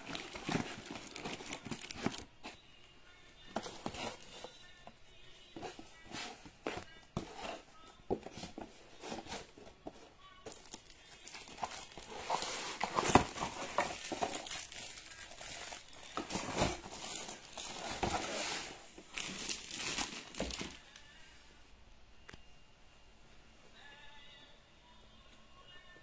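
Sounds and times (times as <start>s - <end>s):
plastic bag crinkling: 0.0s - 2.3s, 10.5s - 20.9s.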